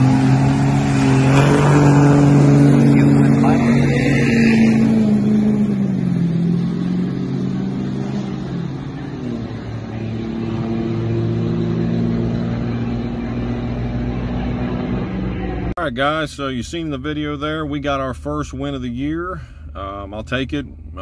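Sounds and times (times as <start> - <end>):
truck engine at full throttle: 0.0 - 16.0.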